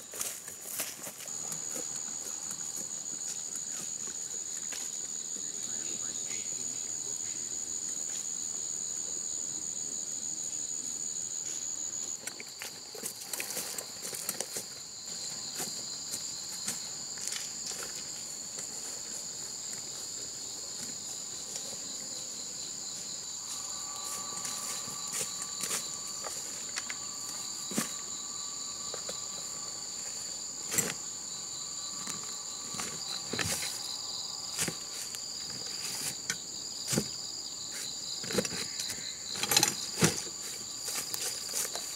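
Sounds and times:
footsteps in undergrowth: 0.0s - 5.0s, 12.4s - 22.0s, 22.7s - 36.2s, 40.2s - 41.9s
insects chorus: 0.0s - 41.9s.

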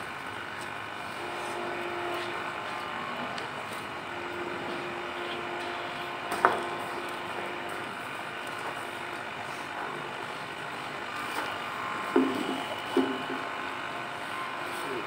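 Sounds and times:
open-air background noise: 0.0s - 15.0s
faint humming tone: 1.0s - 9.2s.

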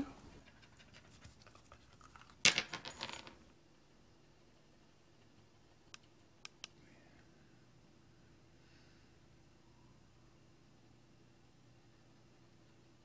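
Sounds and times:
object clattering on tile floor: 0.8s - 3.4s.

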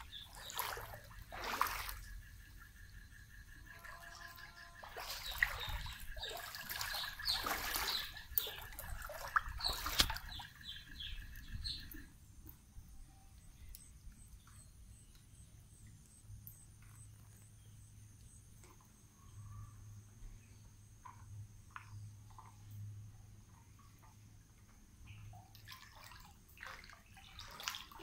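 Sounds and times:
floodwater splashing: 0.0s - 2.3s, 3.7s - 11.1s, 25.5s - 28.0s
high-pitched insect chirping: 1.9s - 8.6s.

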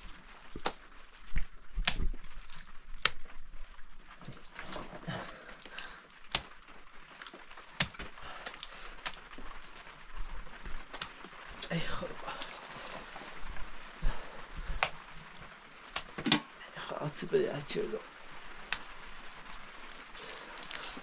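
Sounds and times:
wet mud slapping: 0.5s - 0.8s, 1.4s - 3.4s, 4.2s - 9.4s, 10.4s - 11.3s, 14.1s - 15.1s, 15.8s - 16.4s, 18.6s - 21.0s.

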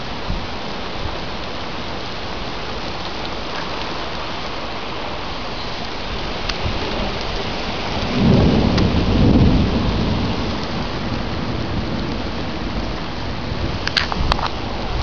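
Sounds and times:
heavy rain pouring: 0.0s - 15.0s
thunder rumble: 5.8s - 15.0s.

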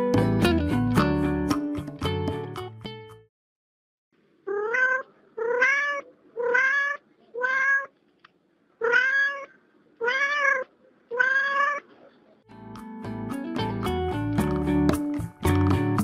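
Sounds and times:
cat meowing: 4.5s - 8.0s, 8.8s - 11.9s.

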